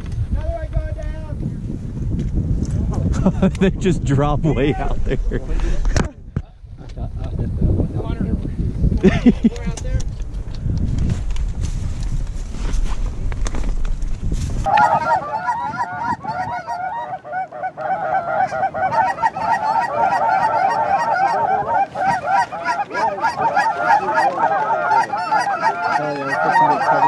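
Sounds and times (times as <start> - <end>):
low rumble: 0.0 - 14.7
geese honking: 14.7 - 27.0.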